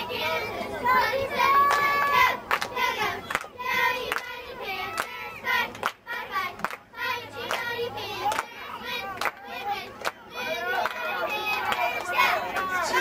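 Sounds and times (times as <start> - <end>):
young voices chanting: 0.0 - 13.0
hand claps: 8.3 - 8.5, 9.2 - 9.4.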